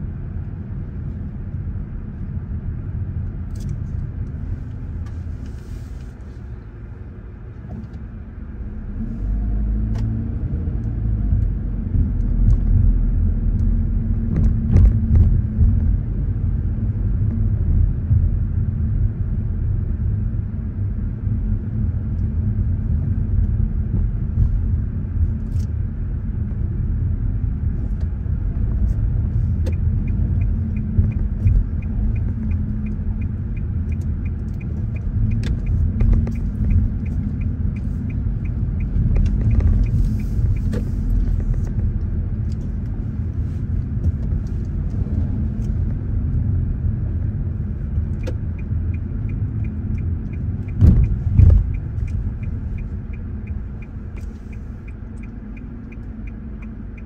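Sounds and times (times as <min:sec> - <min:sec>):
car engine rumble and road noise: 0:00.0 - 0:57.0
turn signal clicking: 0:27.8 - 0:57.0.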